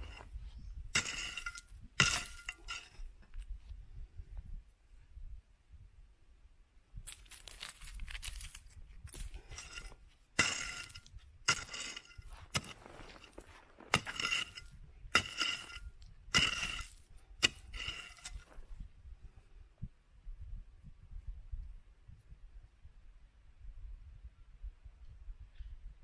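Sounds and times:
rock fragments scraping: 0:00.0 - 0:03.0, 0:07.1 - 0:18.6.

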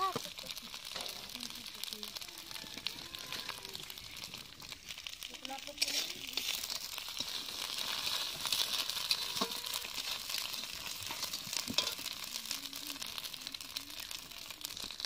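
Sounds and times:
food sizzling in a pan: 0:00.0 - 0:15.0
steel spatula clinking on pan: 0:09.1 - 0:09.8, 0:11.1 - 0:12.0.

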